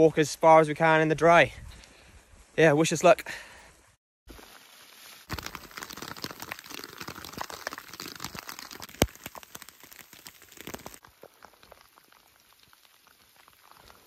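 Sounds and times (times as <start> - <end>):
plastic poncho crinkling: 4.4 - 14.0.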